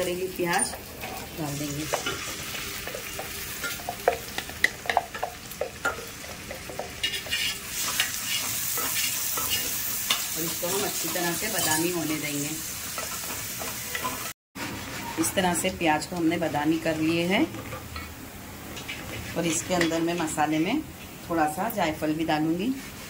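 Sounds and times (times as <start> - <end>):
onions sizzling in hot oil: 0.0 - 23.0
wooden spatula scraping pot: 6.5 - 12.2.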